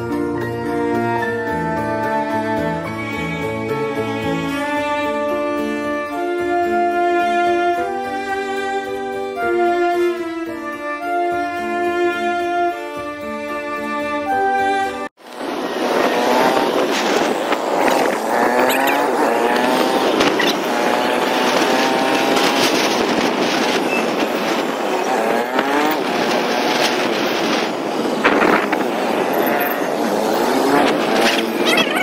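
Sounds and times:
road and wind noise: 0.0 - 32.0
motorcycle engine running: 15.3 - 32.0.

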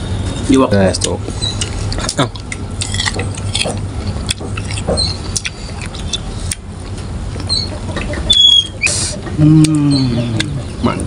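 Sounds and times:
crunchy chewing: 1.4 - 11.0
wet mouth clicks: 2.0 - 6.7, 8.1 - 10.6.

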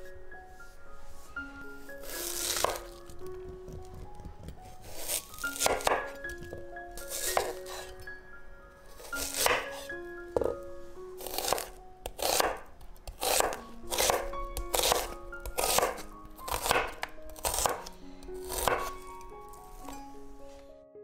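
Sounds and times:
knife slicing onion on board: 2.0 - 8.0, 9.0 - 10.6, 11.2 - 19.0.

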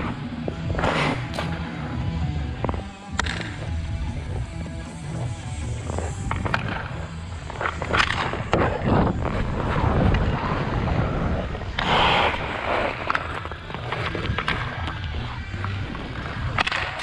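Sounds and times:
skate blades gliding on ice: 0.0 - 17.0
stick and puck clicking on ice: 2.7 - 3.8, 5.0 - 10.4, 11.7 - 17.0.

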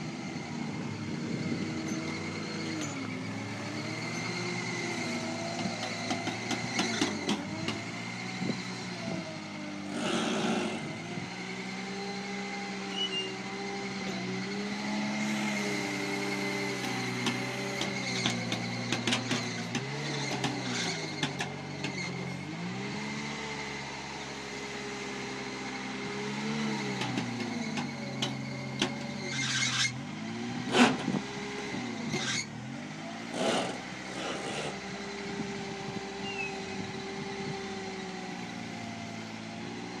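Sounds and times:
engine revving under load: 0.0 - 40.0
scraping on rock: 33.3 - 34.8.

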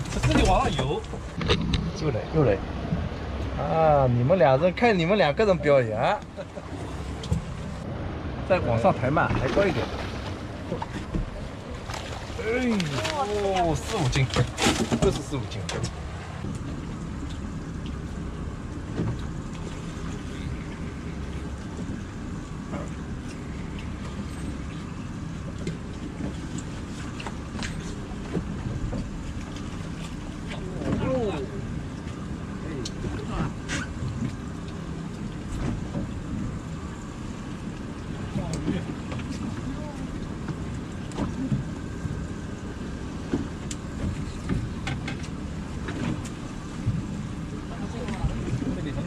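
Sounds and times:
boat engine idling: 0.0 - 49.0
light ticks: 43.6 - 44.2.

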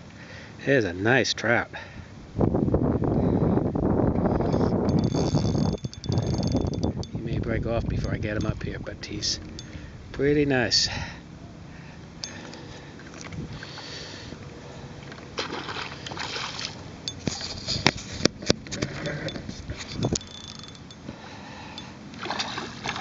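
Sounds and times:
fishing reel clicks and knocks: 4.4 - 7.2, 7.8 - 9.8, 19.3 - 21.1
lapping water: 15.0 - 18.0, 21.6 - 23.0.

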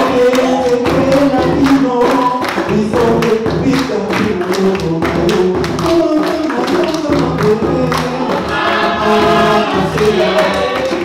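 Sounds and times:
drum hits: 0.0 - 11.0
instrumental accompaniment: 0.0 - 11.0
choir singing gospel music: 7.8 - 11.0.

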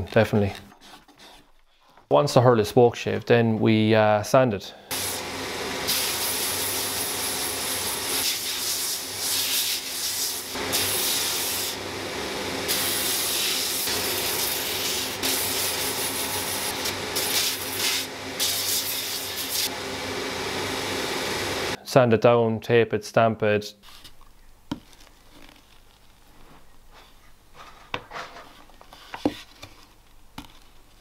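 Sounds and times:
sanding belt hissing against wood: 4.9 - 11.8, 12.6 - 19.7
belt sander humming: 4.9 - 21.8.

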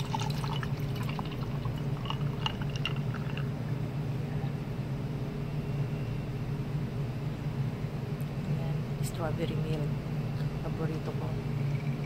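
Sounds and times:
milk poured over ice: 0.0 - 3.5
steady low hum: 0.0 - 12.0.

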